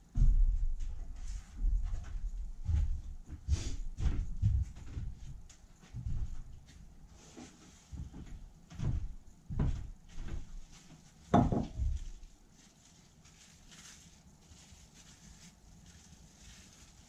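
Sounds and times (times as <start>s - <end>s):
footsteps on wooden floor: 0.1s - 12.2s
bowl knocking on wooden table: 11.3s - 11.9s.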